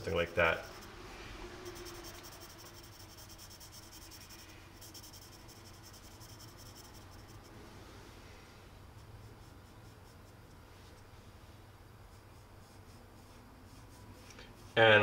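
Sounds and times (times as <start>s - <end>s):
pencil scratching on paper: 0.0s - 0.9s, 1.6s - 7.5s, 8.9s - 11.1s, 12.1s - 15.0s.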